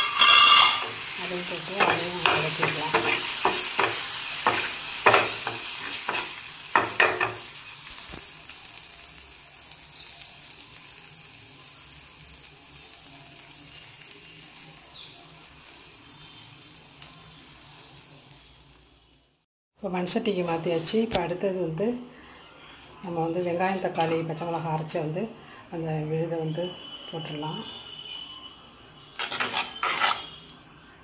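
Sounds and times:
spatula scraping a pan: 0.0s - 7.5s, 23.7s - 24.3s, 29.2s - 30.4s
food sizzling in oil: 0.0s - 19.4s, 23.3s - 25.0s.

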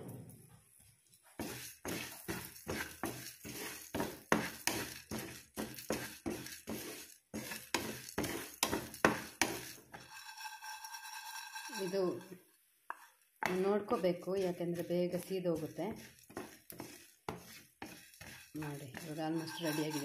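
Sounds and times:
spatula scraping spices in pan: 1.2s - 20.0s
seeds rattling across pan: 1.3s - 12.4s, 13.8s - 20.0s.

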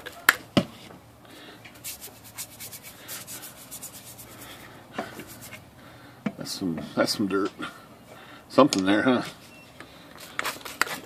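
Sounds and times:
brush scrubbing painted metal: 1.7s - 5.6s.

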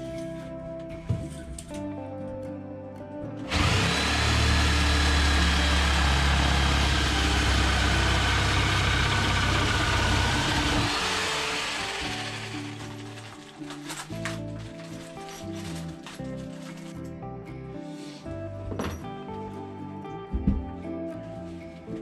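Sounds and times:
electric jigsaw cutting wood: 3.4s - 13.6s.

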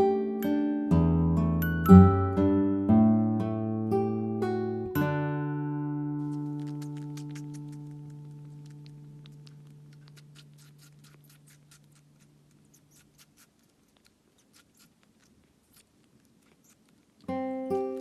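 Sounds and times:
guitar chord: 0.0s - 6.3s
kitten suckling wet clicks: 6.2s - 18.0s.

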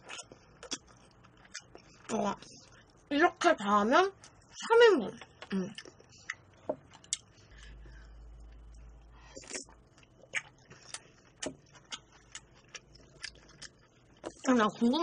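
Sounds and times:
sipping and chewing: 0.0s - 3.1s, 5.7s - 14.5s
faint low rumble: 0.0s - 15.0s.

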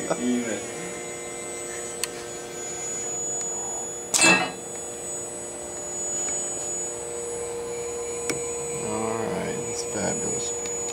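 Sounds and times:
machine hum and whine: 0.0s - 10.9s
metal part clattering into chute: 4.2s - 4.6s.

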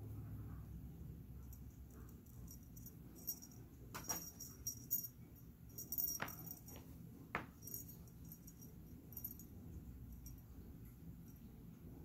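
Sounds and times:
metallic jingling shakes: 1.5s - 6.8s.

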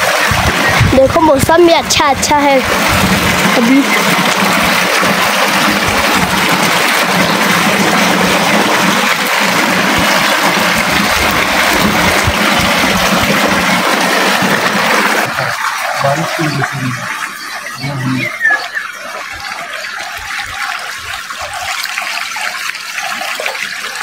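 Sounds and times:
water rushing and splashing: 0.0s - 24.0s.

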